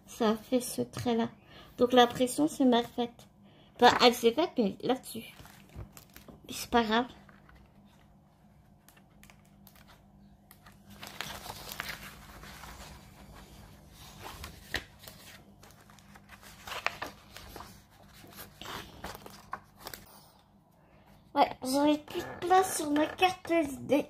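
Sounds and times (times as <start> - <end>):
packaging crinkling: 5.3 - 6.4, 8.8 - 13.3.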